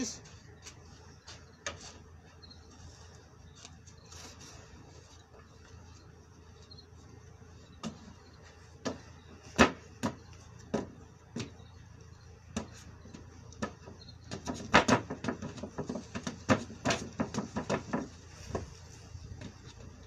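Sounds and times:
sandals stamping on wooden table: 0:12.5 - 0:18.7.

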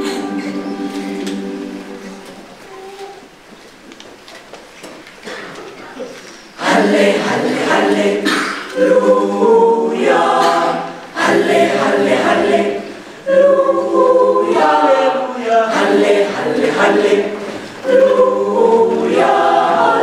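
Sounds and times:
choir singing unaccompanied: 0:06.6 - 0:20.0.

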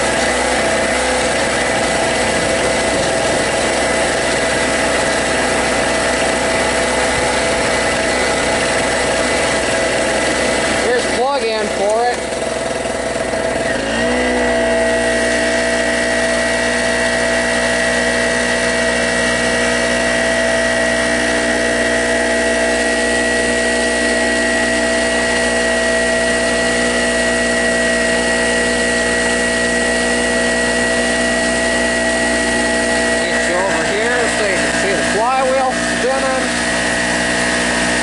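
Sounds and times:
generator engine drone: 0:00.0 - 0:38.0
high whine: 0:13.4 - 0:38.0.

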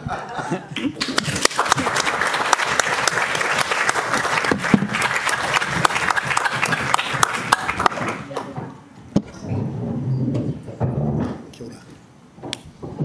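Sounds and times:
audience applauding: 0:01.0 - 0:08.4.

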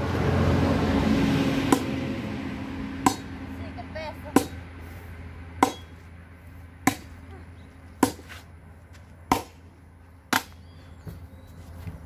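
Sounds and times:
machete chopping wooden log: 0:01.7 - 0:02.0, 0:03.0 - 0:03.3, 0:04.3 - 0:04.6, 0:05.6 - 0:06.0, 0:06.8 - 0:07.2, 0:08.0 - 0:08.3, 0:09.3 - 0:09.7, 0:10.3 - 0:10.6.

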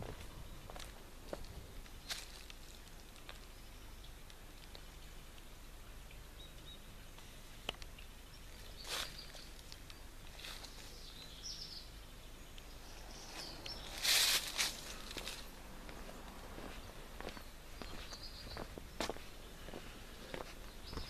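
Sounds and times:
low steady hum: 0:00.0 - 0:21.0
faint bird chirps: 0:08.0 - 0:14.1, 0:17.3 - 0:19.7
rustling: 0:13.3 - 0:16.0.

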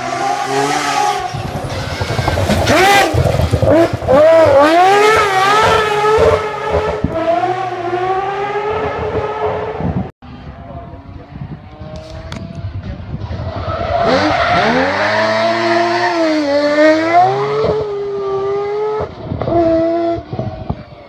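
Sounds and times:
rotary engine revving: 0:00.0 - 0:09.9.

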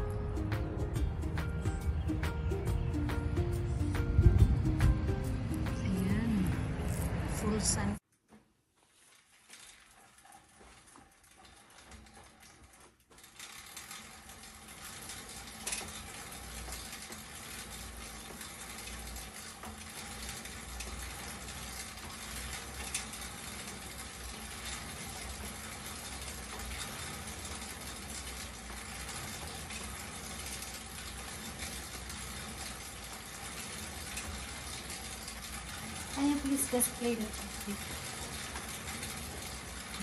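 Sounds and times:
exercise bike fan whirring: 0:00.0 - 0:40.0.

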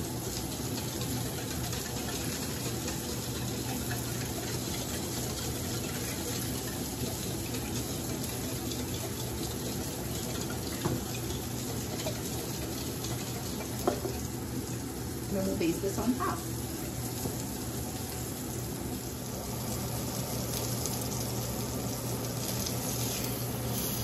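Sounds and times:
whisk ticking against metal bowl: 0:00.0 - 0:14.3
meat sizzling in a skillet: 0:00.0 - 0:24.0.

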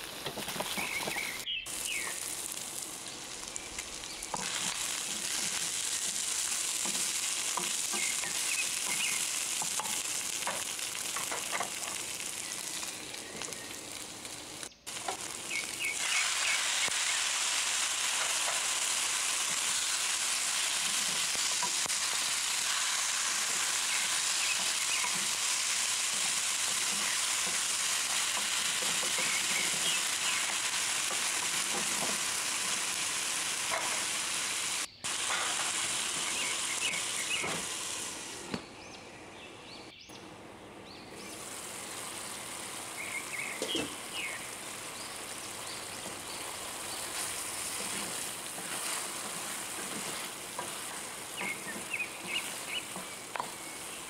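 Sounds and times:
food sizzling in a wok: 0:00.0 - 0:38.5, 0:41.1 - 0:54.0
spatula stirring: 0:46.9 - 0:53.5.

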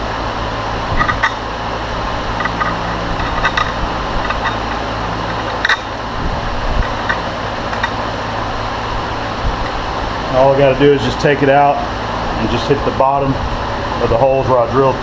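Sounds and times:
fan hum: 0:00.0 - 0:15.0
light metallic clinks: 0:02.4 - 0:06.0.

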